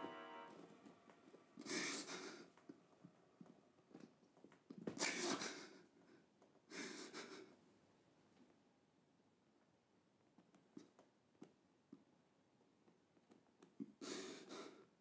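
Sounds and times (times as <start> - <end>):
man breathing heavily: 1.6 - 2.6, 5.0 - 7.6.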